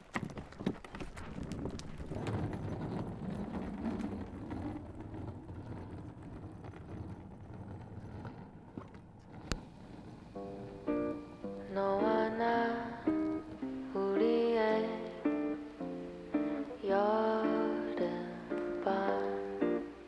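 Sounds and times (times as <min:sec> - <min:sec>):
suitcase wheels rattling on pavement: 0:00.0 - 0:20.0
plucked-string music: 0:10.3 - 0:20.0.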